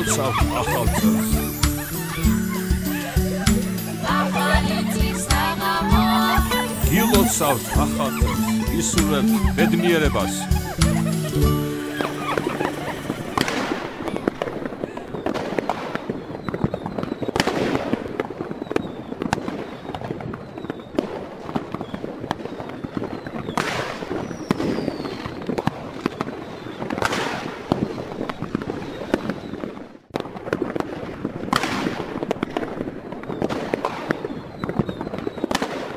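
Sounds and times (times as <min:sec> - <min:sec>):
firework bursts: 0:00.0 - 0:35.9
fireworks crackling: 0:00.0 - 0:35.9
falling firework whistle: 0:10.9 - 0:29.8, 0:33.1 - 0:35.9.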